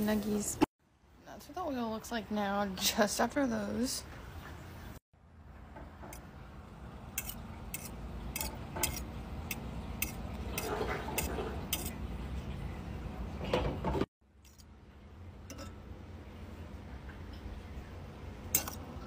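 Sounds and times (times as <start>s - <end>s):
fork clinking against ceramic bowl: 15.5s - 15.8s, 18.6s - 18.8s.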